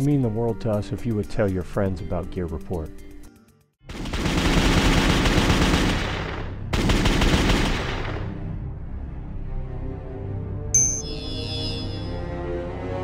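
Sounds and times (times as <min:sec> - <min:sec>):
rapid automatic gunfire: 0:03.9 - 0:08.3.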